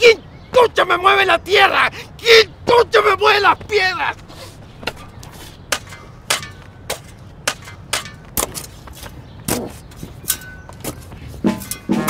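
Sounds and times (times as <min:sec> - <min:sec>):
footsteps on dirt and stones: 0:03.5 - 0:12.0.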